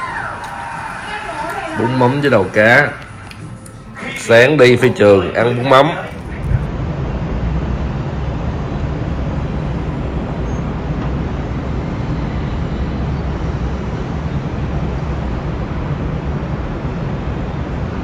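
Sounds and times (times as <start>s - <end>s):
car engine: 6.0s - 18.0s.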